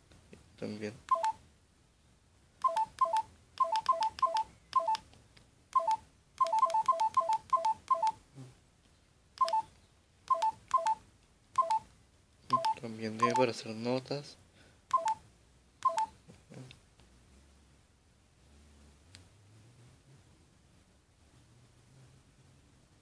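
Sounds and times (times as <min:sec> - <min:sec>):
phone keypad beeps: 0:01.1 - 0:01.4, 0:02.6 - 0:05.0, 0:05.7 - 0:08.2, 0:09.4 - 0:09.7, 0:10.3 - 0:11.0, 0:11.6 - 0:11.9, 0:12.5 - 0:13.5, 0:14.9 - 0:15.2, 0:15.8 - 0:16.2.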